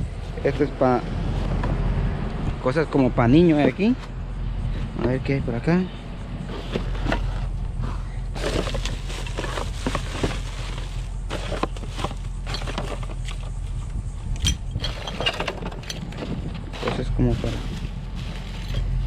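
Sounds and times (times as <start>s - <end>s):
steady low hum: 0.0s - 19.0s
junk knocking and clattering: 6.4s - 19.0s
plastic garbage bags rustling: 8.3s - 13.2s, 16.2s - 19.0s.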